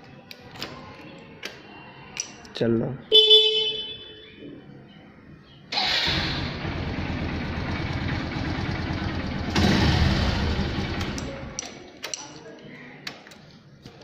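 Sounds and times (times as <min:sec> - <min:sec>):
motorcycle engine starting and idling: 0:05.7 - 0:11.6.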